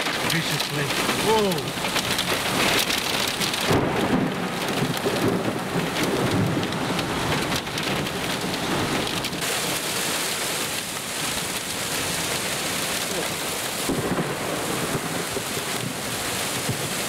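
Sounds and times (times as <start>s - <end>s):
rain and hail pelting a car: 0.0s - 17.0s.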